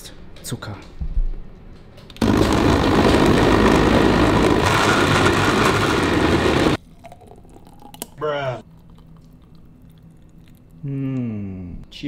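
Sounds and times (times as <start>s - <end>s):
blender motor running: 2.2s - 6.8s.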